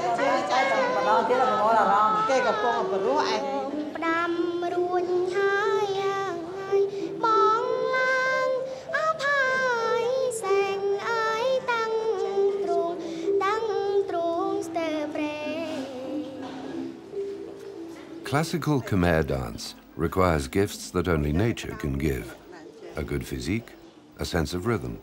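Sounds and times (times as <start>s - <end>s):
girl singing: 0.0s - 17.4s.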